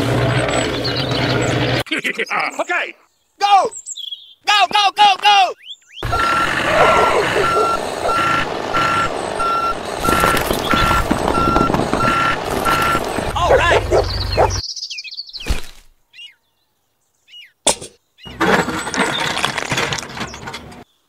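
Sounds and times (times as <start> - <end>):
truck engine running: 0.0 - 1.8, 6.0 - 14.6
truck reversing alarm beeping: 6.0 - 14.6.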